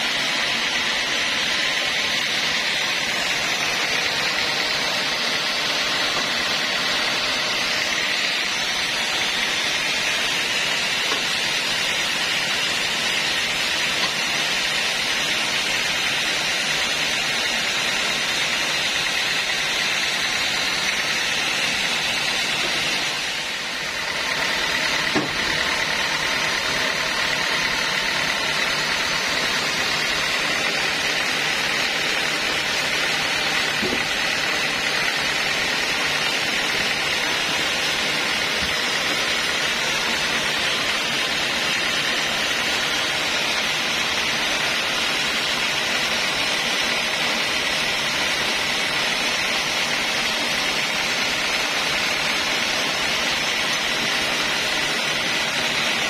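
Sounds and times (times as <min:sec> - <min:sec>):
band sawmill running: 0:00.0 - 0:56.0
wooden knock: 0:25.1 - 0:25.4.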